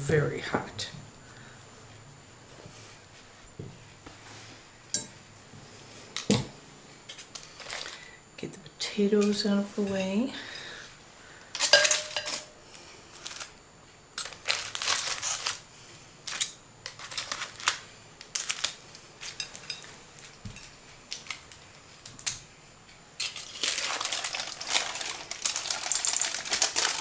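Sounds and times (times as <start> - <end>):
metal clink with ringing: 4.9 - 5.2, 11.6 - 12.5
aluminium foil crinkling: 7.1 - 8.1, 11.6 - 12.5, 13.1 - 13.6, 14.2 - 22.4, 23.2 - 27.0.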